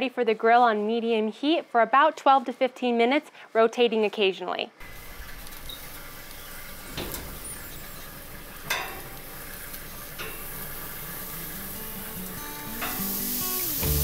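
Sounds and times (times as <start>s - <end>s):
food sizzling on grill: 4.8s - 14.0s
metal tongs clacking: 8.6s - 13.4s.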